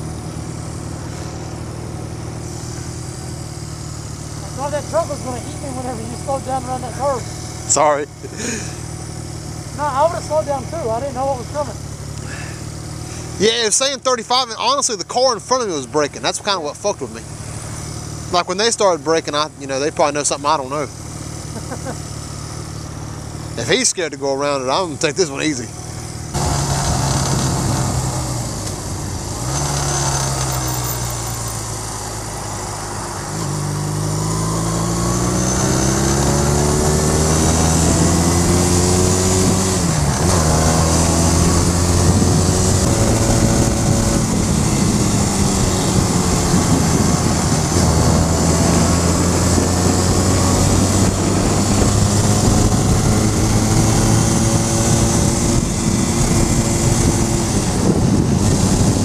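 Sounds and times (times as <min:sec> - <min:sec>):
motorcycle engine accelerating: 0:00.0 - 0:59.0
wind rushing over microphone: 0:36.9 - 0:59.0.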